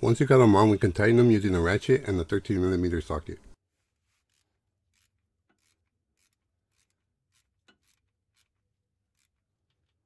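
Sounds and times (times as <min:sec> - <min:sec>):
ratchet clicking: 0:04.3 - 0:09.5.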